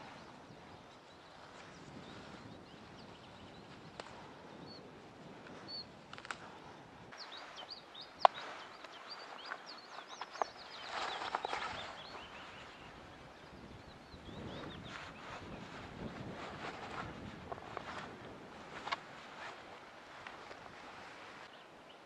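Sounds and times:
small birds chirping: 0.0 - 22.0
rustling: 5.2 - 13.8, 14.4 - 21.6
sharp clicks: 6.1 - 6.5.

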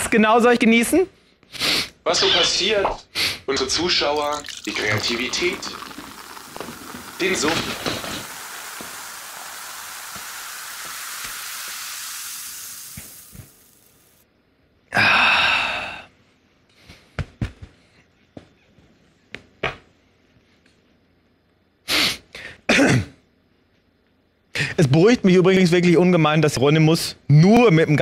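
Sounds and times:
hiss: 5.0 - 14.2, 21.9 - 22.3
long loud sigh: 14.9 - 16.1.

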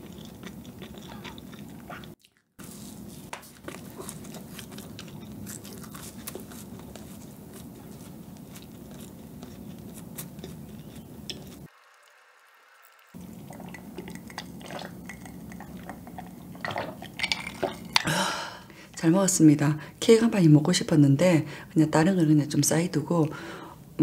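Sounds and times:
close chewing mouth clicks: 0.0 - 2.5, 3.6 - 12.1, 12.9 - 18.1
low steady hum: 0.0 - 24.0.

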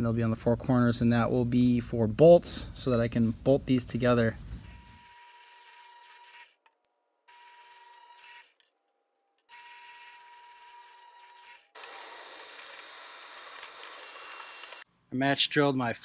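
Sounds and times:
drill press motor whine: 4.6 - 6.5, 9.4 - 14.8.

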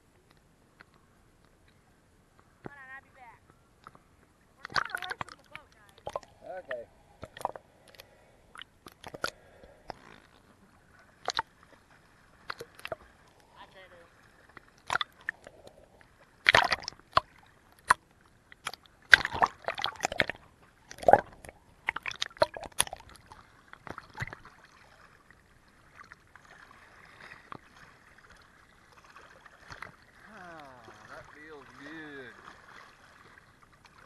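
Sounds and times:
water lapping and sloshing: 0.2 - 34.0
swimmer kicking splashes: 16.3 - 34.0.

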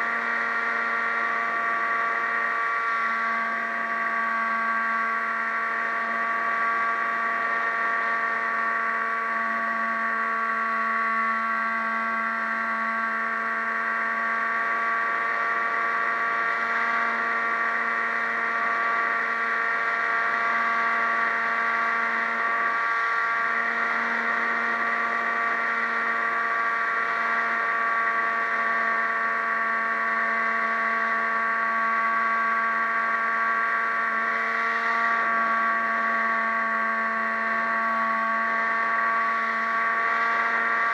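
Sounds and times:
model plane motor whine: 0.0 - 40.9.

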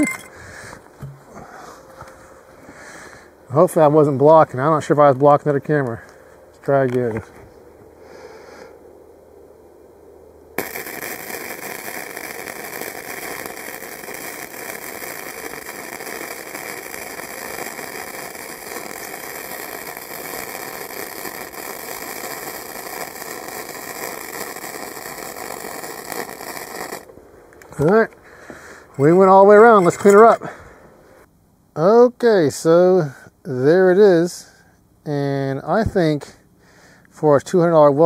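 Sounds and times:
welding arc crackling: 10.6 - 28.0.

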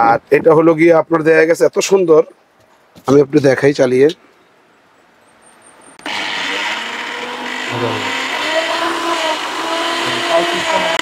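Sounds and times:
blender motor running: 6.0 - 11.0.

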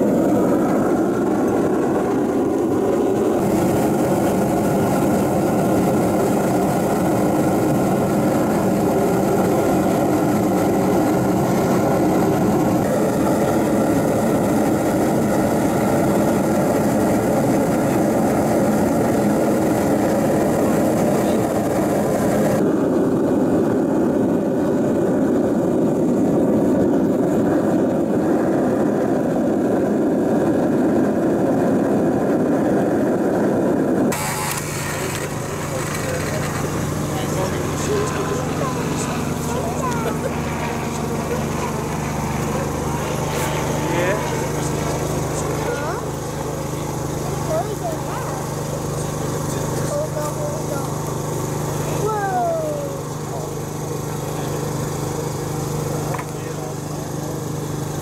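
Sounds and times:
furnace burner roaring with fan: 0.0 - 58.0.

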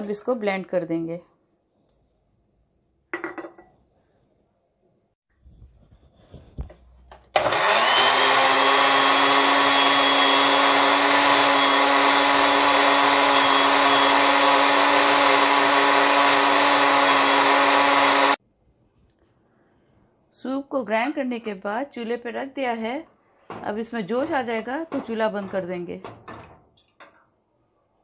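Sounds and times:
blender motor running: 7.4 - 18.4.

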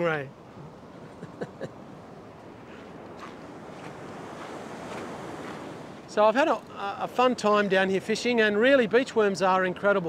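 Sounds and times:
surf washing on beach: 0.0 - 7.2.

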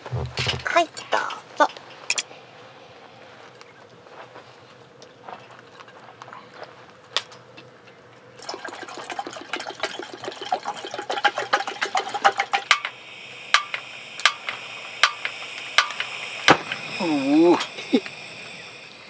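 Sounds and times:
gas burner hissing: 0.0 - 19.0
burner igniter clicks: 11.8 - 18.8.

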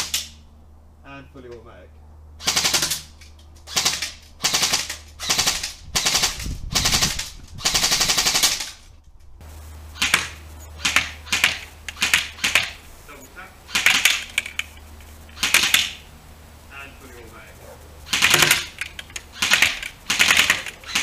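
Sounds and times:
airsoft gun firing bursts: 2.4 - 3.1, 3.7 - 8.8, 10.0 - 12.8, 13.7 - 14.7, 15.3 - 16.1, 18.1 - 21.0.

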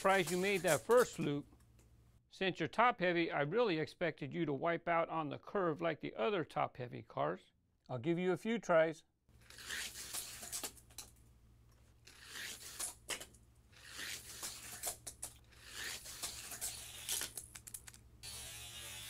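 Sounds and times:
toy car on plastic track: 0.0 - 1.2, 13.8 - 19.0.

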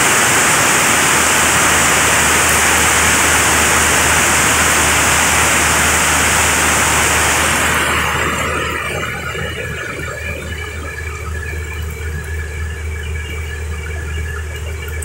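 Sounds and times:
heavy rain on paving: 0.0 - 9.2.

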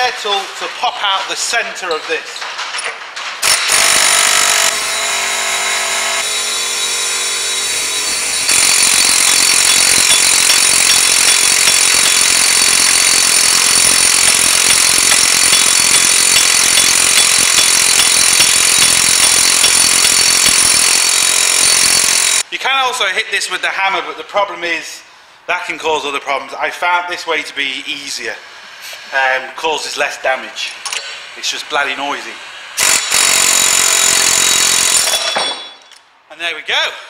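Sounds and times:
pneumatic air hammer hammering metal: 2.0 - 22.4, 32.7 - 36.0.

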